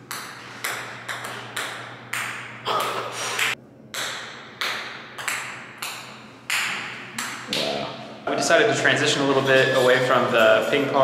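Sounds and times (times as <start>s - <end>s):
ping-pong ball bouncing on stairs: 0.1s - 7.6s.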